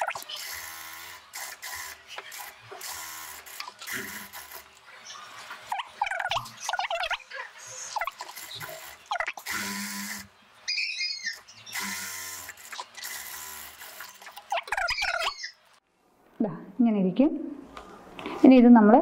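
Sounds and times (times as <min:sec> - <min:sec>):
sewing machine stitching: 0:00.0 - 0:04.8, 0:08.0 - 0:10.3, 0:11.7 - 0:15.3
high chirping: 0:10.7 - 0:12.0, 0:14.5 - 0:15.6.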